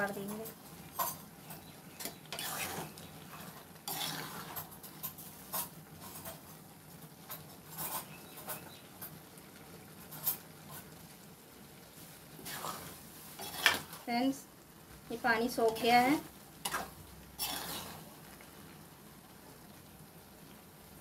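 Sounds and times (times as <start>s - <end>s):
metal spatula scraping a pan: 0.1s - 9.2s, 9.9s - 11.1s, 12.4s - 14.1s, 15.5s - 18.4s.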